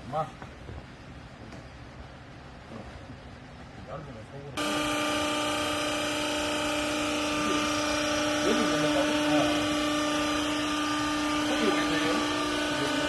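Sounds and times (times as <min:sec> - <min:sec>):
hydraulic baler motor humming: 0:04.6 - 0:13.0.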